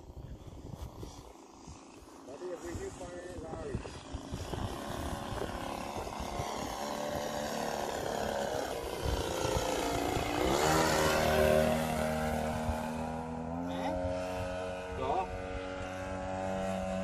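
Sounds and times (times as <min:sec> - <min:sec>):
model plane engine buzzing: 0:00.0 - 0:17.0.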